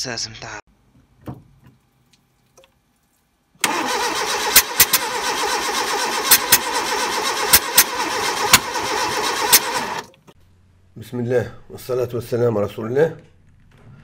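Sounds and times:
petrol engine turning over: 3.6s - 10.1s.

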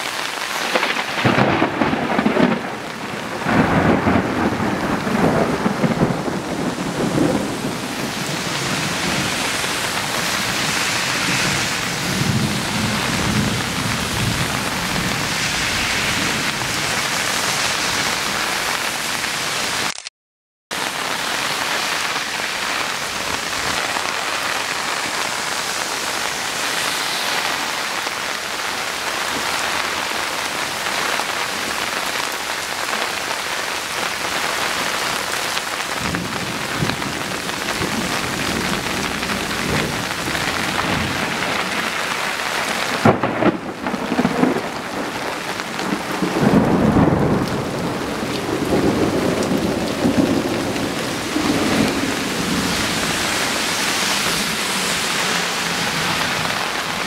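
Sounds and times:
heavy rain pouring: 0.0s - 20.1s, 20.7s - 57.0s
sharp thunder crack: 0.6s - 17.1s, 43.0s - 54.9s
thunder rumbling: 0.6s - 18.8s, 36.0s - 57.0s.

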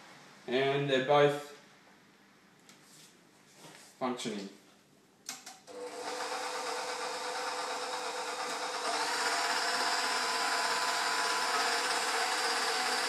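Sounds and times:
stand mixer motor running: 5.7s - 13.0s.

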